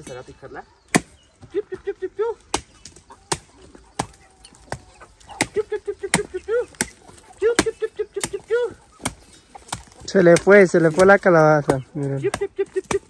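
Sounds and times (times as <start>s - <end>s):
chickens clucking: 0.0s - 13.0s
machete chopping squash: 0.9s - 1.2s, 2.5s - 11.1s, 11.7s - 13.0s.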